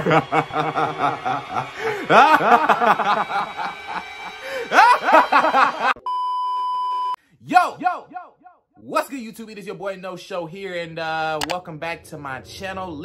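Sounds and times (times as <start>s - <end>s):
man laughing hard: 0.0s - 6.0s.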